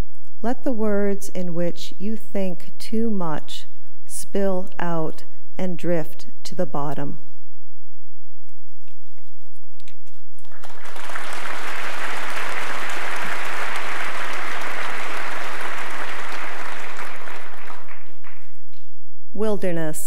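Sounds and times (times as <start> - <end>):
audience applauding: 10.3 - 18.8.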